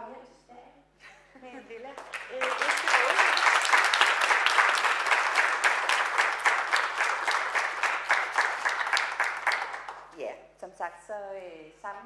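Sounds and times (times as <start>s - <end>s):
audience applauding: 2.0s - 10.1s.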